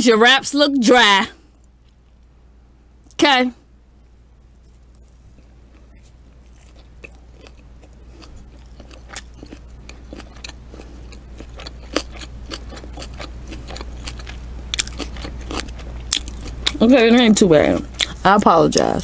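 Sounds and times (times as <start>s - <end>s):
low steady hum: 0.0s - 19.0s
close chewing with mouth clicks: 4.7s - 16.9s, 17.7s - 18.5s.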